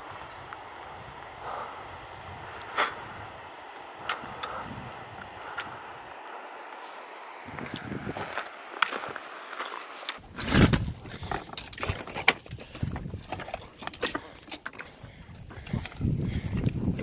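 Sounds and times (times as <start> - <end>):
trekking poles clicking on rock: 7.2 - 17.0.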